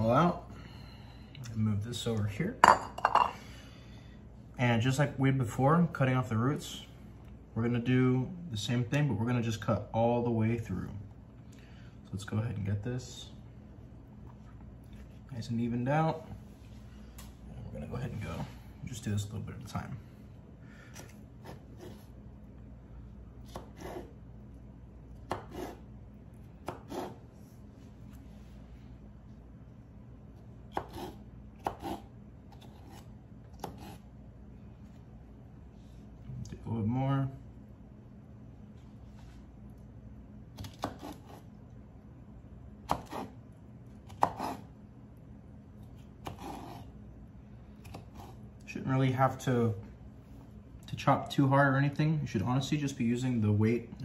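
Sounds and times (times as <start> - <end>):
knife cutting vegetables: 25.2 - 25.8, 26.6 - 27.2, 30.7 - 34.0, 40.6 - 41.5, 42.9 - 43.4, 44.0 - 44.7, 45.8 - 46.9.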